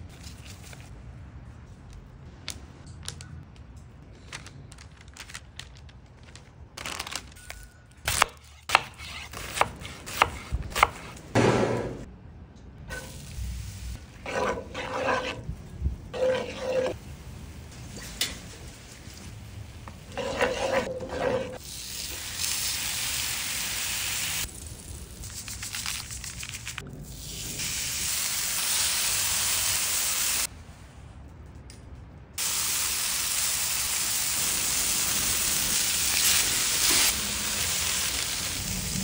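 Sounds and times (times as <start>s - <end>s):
knife chopping onion on board: 8.1s - 12.0s
onion sizzling in skillet: 16.2s - 26.0s, 27.1s - 30.5s, 32.4s - 39.0s.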